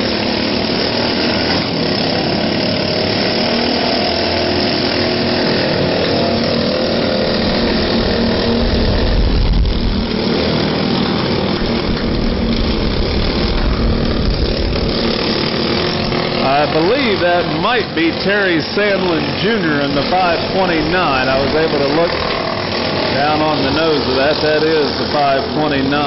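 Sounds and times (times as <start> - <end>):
lawnmower engines droning: 0.0 - 26.0
deep rumble: 6.8 - 22.7.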